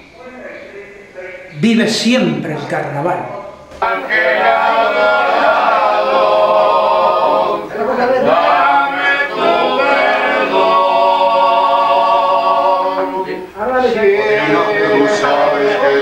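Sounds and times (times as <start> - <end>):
men singing unaccompanied: 3.8 - 16.0.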